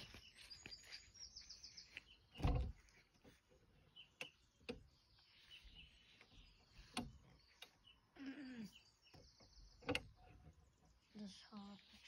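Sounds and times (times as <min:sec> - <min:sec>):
birds chirping faintly: 0:00.0 - 0:12.0
thump on lounger frame: 0:02.4 - 0:02.8.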